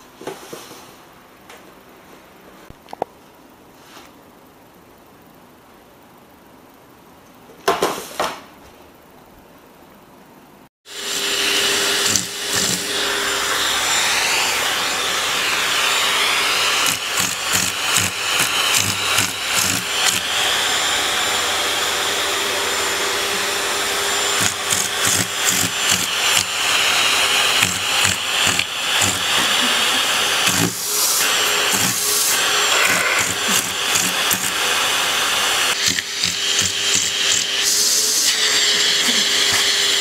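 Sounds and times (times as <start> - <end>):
vacuum cleaner suction hiss: 10.9 - 40.0.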